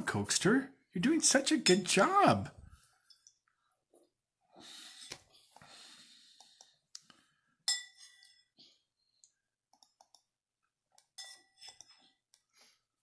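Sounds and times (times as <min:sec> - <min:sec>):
spoon clinking against bowl: 0:07.7 - 0:08.5, 0:11.1 - 0:12.0
faint small clicks: 0:09.2 - 0:10.3.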